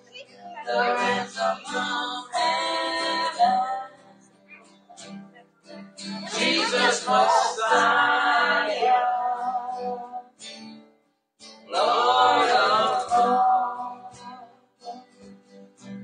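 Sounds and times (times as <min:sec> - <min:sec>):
plucked acoustic guitar: 0:00.0 - 0:16.0
person singing worship song: 0:00.6 - 0:04.3, 0:06.0 - 0:10.4, 0:11.7 - 0:15.1.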